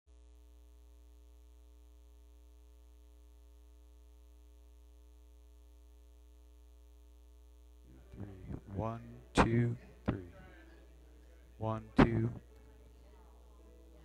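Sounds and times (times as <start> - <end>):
electrical mains hum: 0.1 - 14.0.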